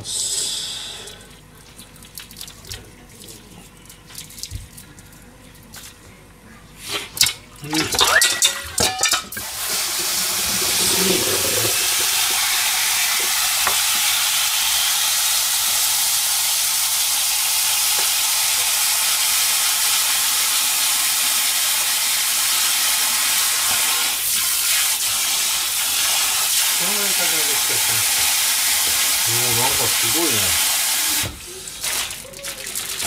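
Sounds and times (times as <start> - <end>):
metal bowl knocking in sink: 7.8 - 9.4
tap running into steel sink: 13.1 - 14.1, 18.0 - 18.2.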